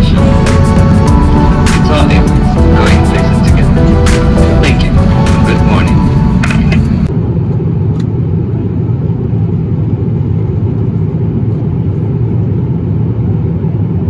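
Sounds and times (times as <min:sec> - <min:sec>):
airliner cabin rumble: 0:00.0 - 0:14.0.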